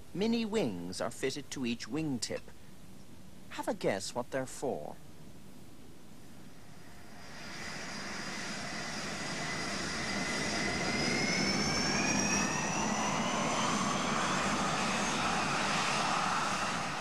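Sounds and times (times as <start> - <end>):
jet engines at takeoff power: 6.4 - 17.0.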